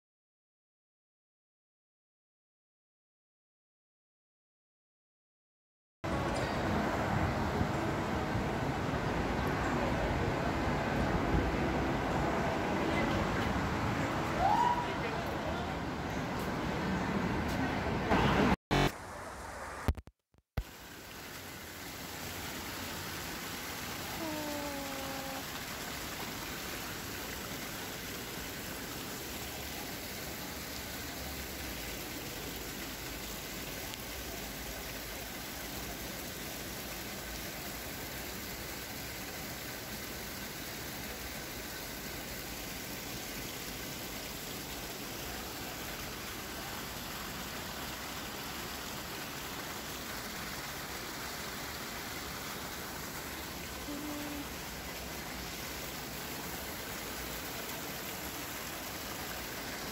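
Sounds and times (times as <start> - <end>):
waterfall splashing over rocks: 20.6 - 59.9.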